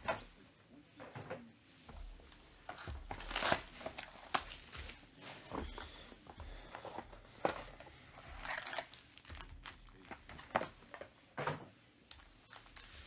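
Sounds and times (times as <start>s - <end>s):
card packs rustling and crinkling: 2.3s - 11.1s, 12.2s - 13.0s.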